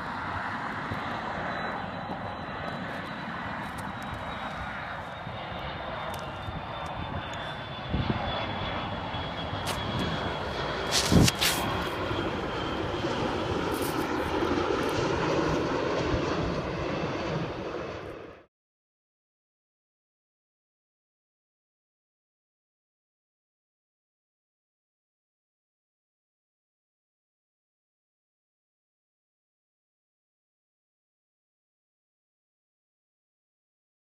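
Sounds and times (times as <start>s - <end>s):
jet airliner engine whine: 0.0s - 18.5s.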